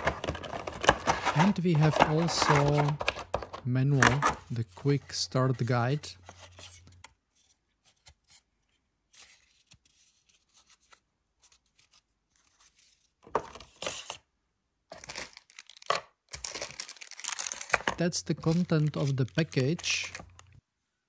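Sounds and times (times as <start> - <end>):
paper and plastic rustling: 0.0 - 8.5, 14.9 - 20.6.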